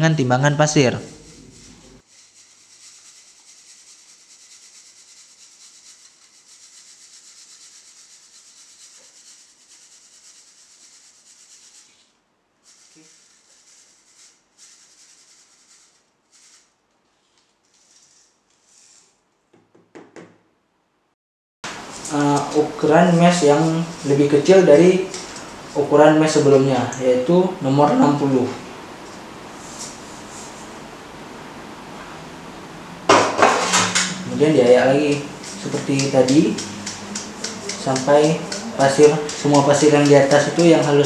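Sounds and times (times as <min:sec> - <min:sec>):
sand hissing through sieve: 0:00.9 - 0:16.8, 0:34.2 - 0:41.0.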